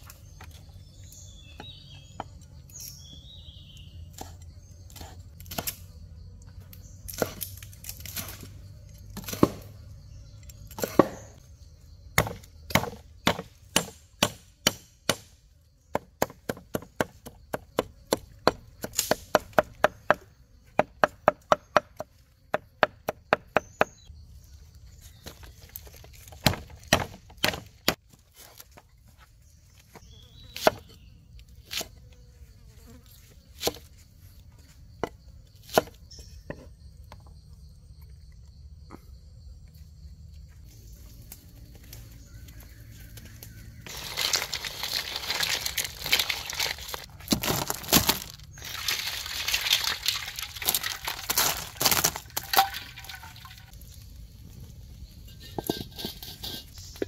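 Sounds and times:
faint insect buzz: 0.0s - 13.2s, 29.8s - 43.6s.

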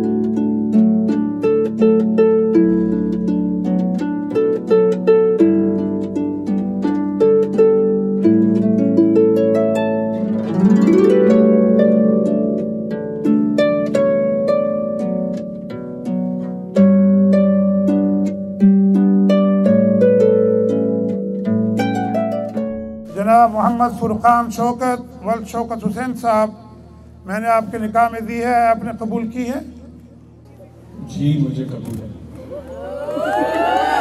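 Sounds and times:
plucked harp notes: 0.0s - 26.4s.

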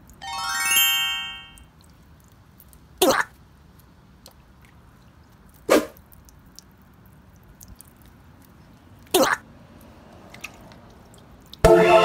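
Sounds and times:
squishy toys slapping on wet concrete: 10.2s - 11.6s.

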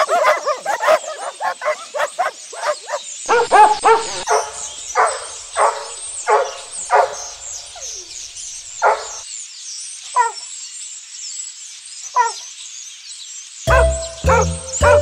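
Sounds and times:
puppy yipping and barking: 0.0s - 7.2s, 8.8s - 9.2s, 13.7s - 15.0s.

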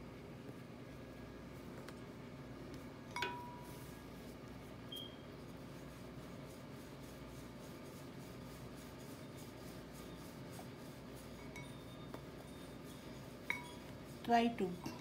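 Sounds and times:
steady low hum: 0.0s - 15.0s
knife rubbing and tapping: 13.0s - 14.0s.

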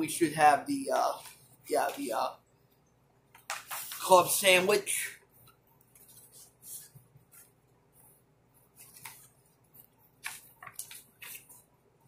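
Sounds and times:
paper rustling: 3.4s - 4.4s, 8.7s - 11.7s.

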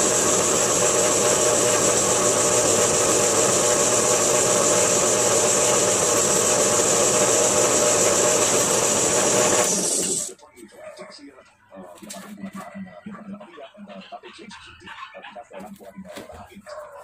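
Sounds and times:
drill press drilling metal: 0.0s - 10.3s.

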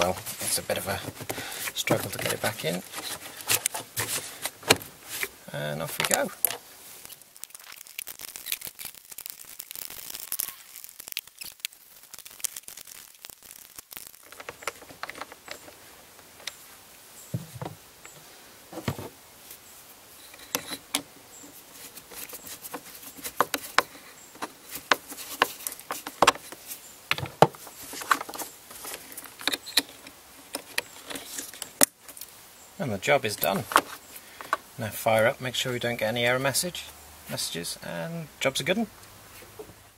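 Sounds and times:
hands clicking plastic parts: 5.9s - 16.6s, 21.9s - 32.3s, 33.4s - 34.7s.

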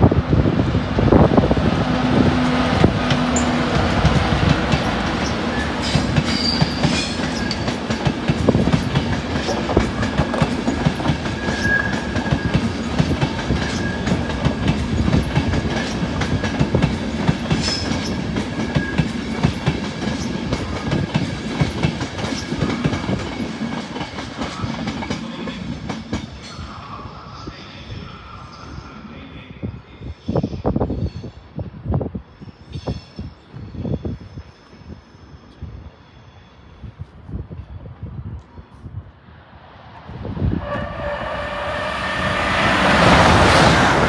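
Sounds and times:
train wheels clicking over rails: 1.8s - 26.6s.

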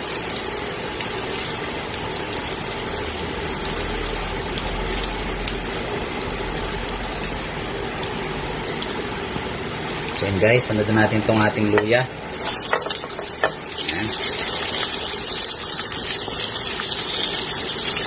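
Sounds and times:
garlic sizzling in oil: 0.0s - 10.4s, 11.2s - 18.0s.

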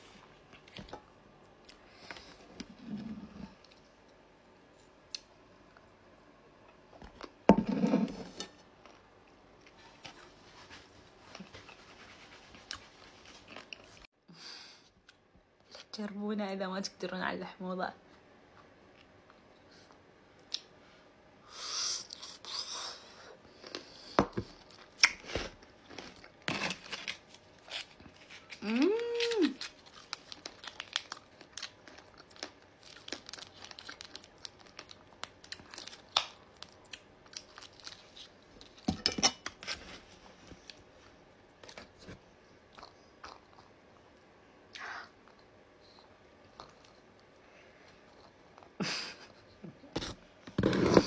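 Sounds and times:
plastic sachet crinkling and tearing: 26.6s - 38.2s
chewing fruit leather: 27.0s - 38.8s, 42.6s - 44.1s, 44.7s - 48.8s
person humming: 28.6s - 29.6s.

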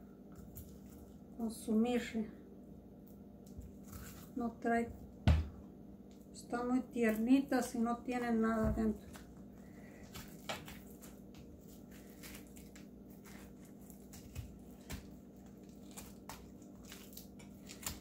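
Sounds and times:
steady low hum: 0.0s - 18.0s
wet squishing and tearing: 9.0s - 18.0s.

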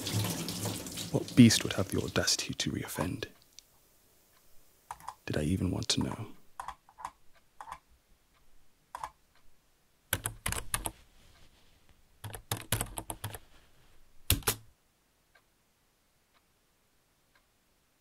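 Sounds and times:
typing on computer keyboard: 6.6s - 7.8s, 8.9s - 9.2s, 10.1s - 11.0s, 12.2s - 13.4s, 14.3s - 14.6s.

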